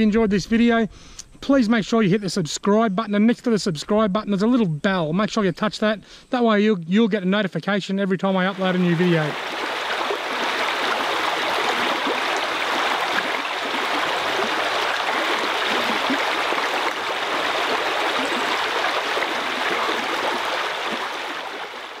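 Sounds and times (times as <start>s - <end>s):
creek water rushing and babbling: 8.4s - 22.0s.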